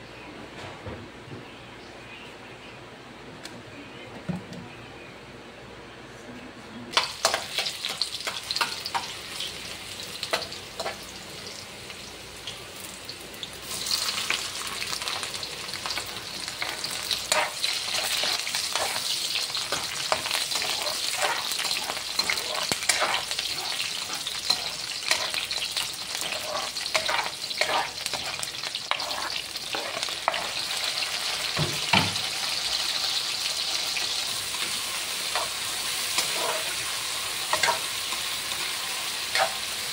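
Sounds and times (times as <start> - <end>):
food sizzling in frying pan: 6.9 - 39.9
metal spoon scraping pan: 16.6 - 30.6, 35.3 - 36.8.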